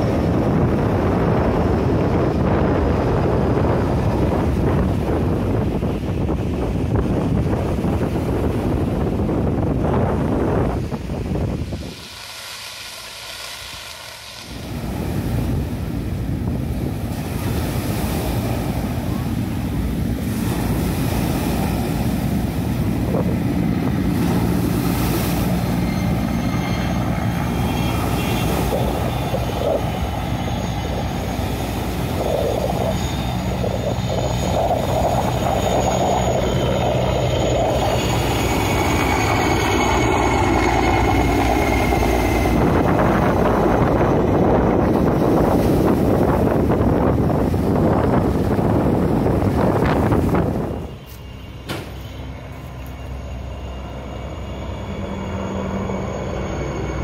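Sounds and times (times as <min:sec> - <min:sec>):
helicopter rotor and engine: 0:00.0 - 0:57.0
high turbine whine: 0:00.0 - 0:57.0.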